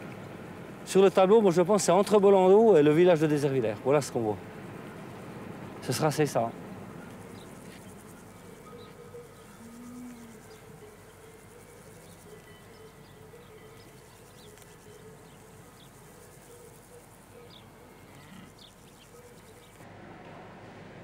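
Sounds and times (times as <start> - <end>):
insect buzz: 3.9 - 19.8.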